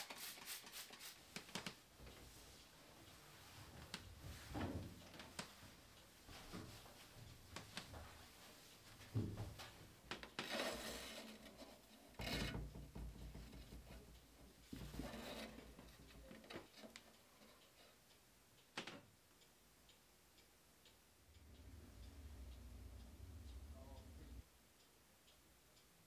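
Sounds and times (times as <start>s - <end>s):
soft rustling: 0.5s - 12.4s.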